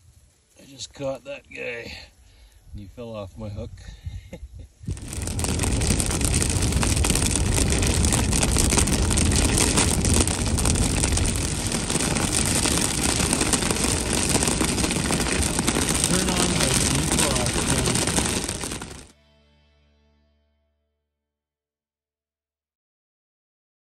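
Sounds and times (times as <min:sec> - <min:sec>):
heavy rain on car windshield: 0:04.9 - 0:19.1
road and engine rumble: 0:04.9 - 0:19.1.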